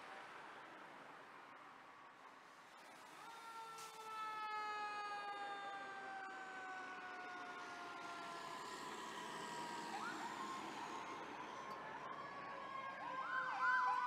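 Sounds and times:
fire truck siren wailing: 0:03.0 - 0:14.0
siren yelps: 0:03.2 - 0:14.0.

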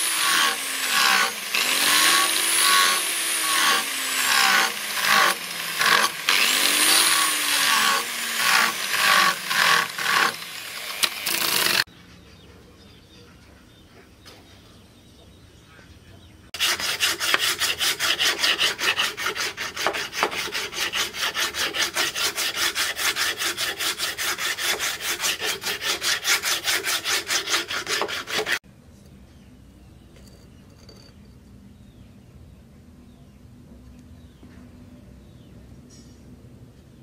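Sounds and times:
sanding wooden handle by hand: 0:00.0 - 0:11.9, 0:16.6 - 0:28.6.

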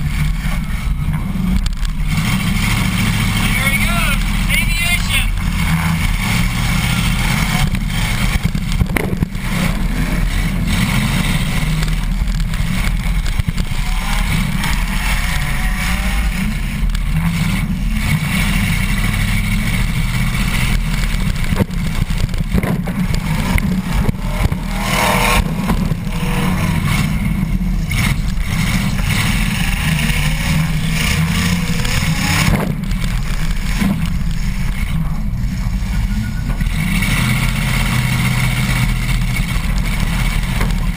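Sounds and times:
car engine running rough: 0:00.0 - 0:40.9
sharp knocks and clunks: 0:20.8 - 0:26.2.

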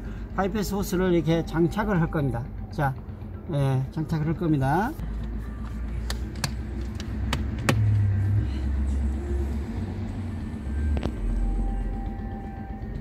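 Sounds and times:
steady low rumble: 0:00.0 - 0:13.0
rubber hose clicks and knocks: 0:06.0 - 0:08.0.

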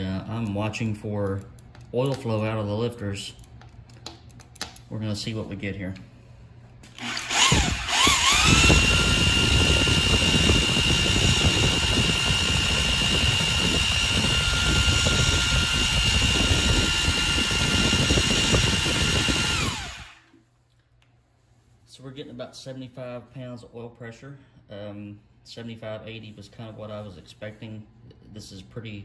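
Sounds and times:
electric drill whining: 0:06.9 - 0:20.3.

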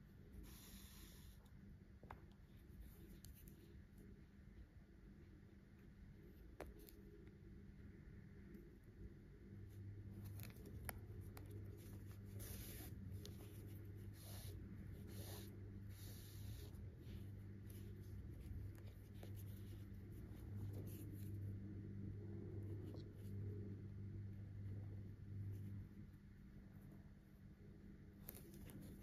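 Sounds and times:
steady low hum: 0:00.0 - 0:29.0
needle and yarn scratching: 0:09.7 - 0:21.8, 0:28.1 - 0:29.0.

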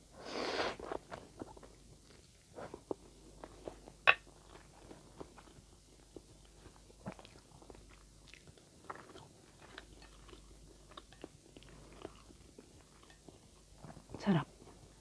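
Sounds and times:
person chewing noodles: 0:00.5 - 0:15.0.

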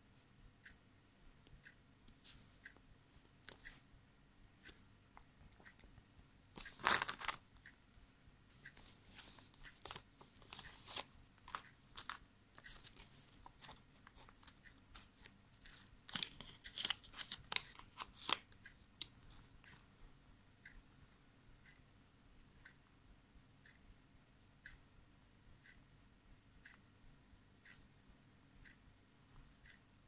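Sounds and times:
plastic bag crinkling: 0:06.7 - 0:07.4.

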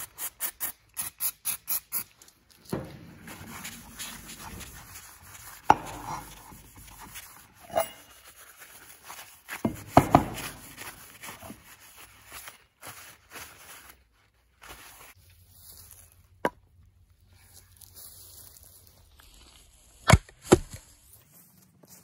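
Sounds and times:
towel rubbing on metal: 0:02.7 - 0:09.0, 0:09.7 - 0:11.8
chain and axe head knocking: 0:09.7 - 0:10.7.

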